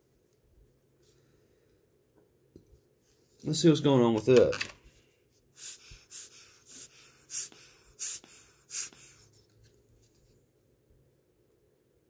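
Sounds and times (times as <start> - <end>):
short puffs of air: 5.5 - 9.3.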